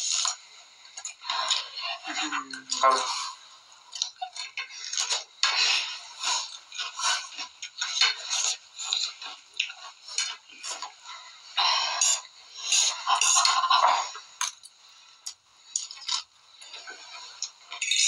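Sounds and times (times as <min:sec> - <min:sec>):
people eating noisily: 0:00.0 - 0:18.0
cutlery scraping plates: 0:04.0 - 0:10.9, 0:11.6 - 0:14.7, 0:15.8 - 0:18.0.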